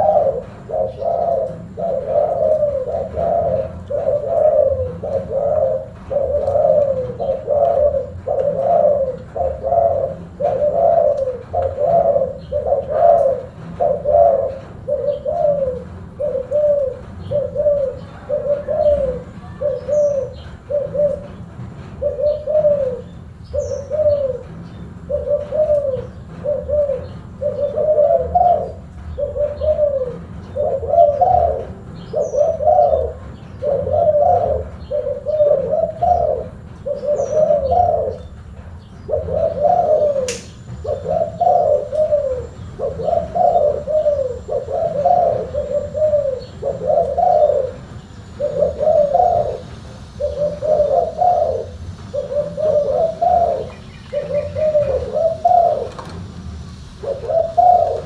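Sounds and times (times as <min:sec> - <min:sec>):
dove cooing: 0:00.0 - 0:58.0
sharp click: 0:40.3 - 0:40.6.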